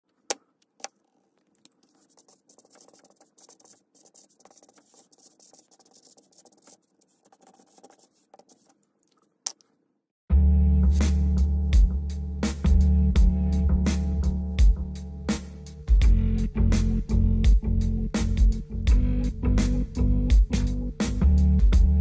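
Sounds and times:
marker pen scratching paper: 0:01.6 - 0:09.6.

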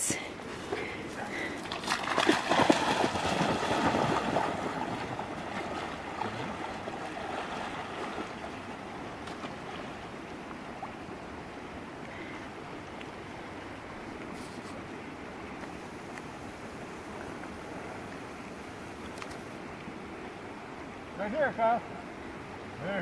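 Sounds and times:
river flowing: 0:00.0 - 0:23.0
dog splashing in water: 0:01.6 - 0:08.6.

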